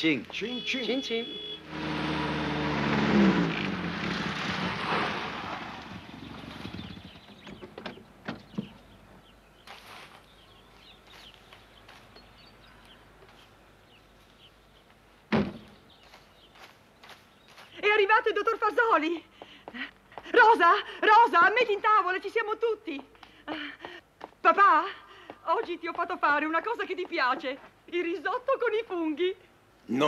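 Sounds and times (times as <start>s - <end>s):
vintage car engine and tyres: 0.0s - 17.8s
car door slamming: 15.3s - 15.8s.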